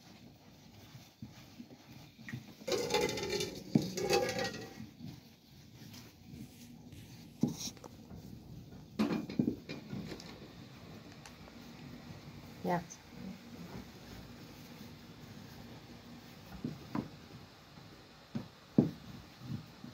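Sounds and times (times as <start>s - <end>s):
hands patting dough: 0.0s - 19.9s
rolling pin knocking on dough: 18.3s - 19.9s.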